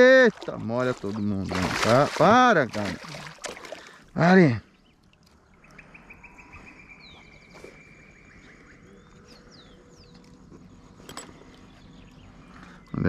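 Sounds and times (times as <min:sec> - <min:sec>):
bird chirping trill: 0:04.6 - 0:13.0.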